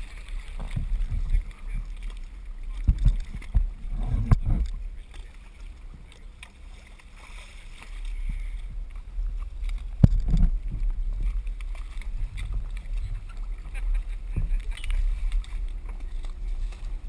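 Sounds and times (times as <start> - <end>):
low steady rumble: 0.0 - 17.0
water sloshing against boat hull: 0.0 - 17.0
knocks on boat: 2.8 - 4.7.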